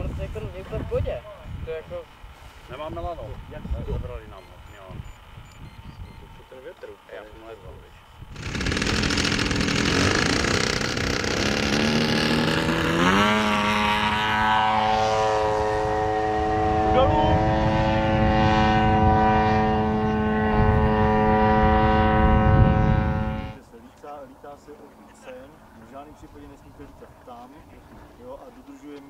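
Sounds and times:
model plane engine and propeller: 0.2s - 29.0s.

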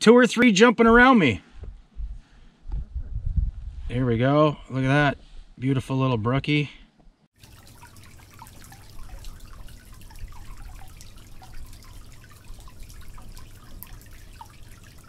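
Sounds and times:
steady low rumble: 1.6s - 4.0s
water lapping and dripping: 7.4s - 15.0s.

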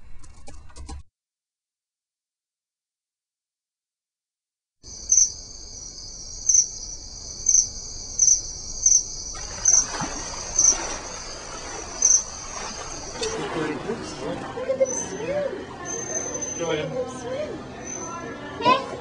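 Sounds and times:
insect chorus chirping: 4.8s - 13.4s.

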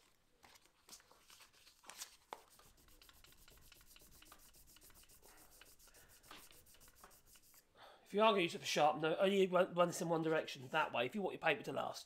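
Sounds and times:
chisel rubbing on sandpaper: 2.5s - 7.6s.

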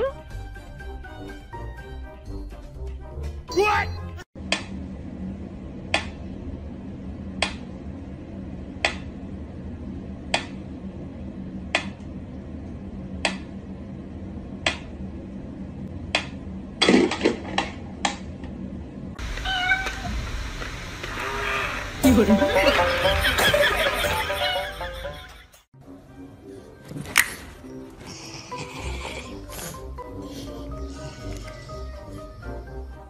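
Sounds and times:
low steady hum: 4.4s - 25.4s
cat crying: 19.3s - 20.1s.

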